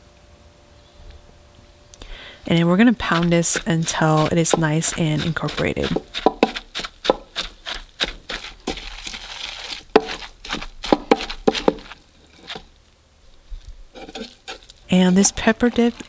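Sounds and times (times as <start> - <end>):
pestle pounding in wooden mortar: 2.4 - 12.7, 13.9 - 16.0.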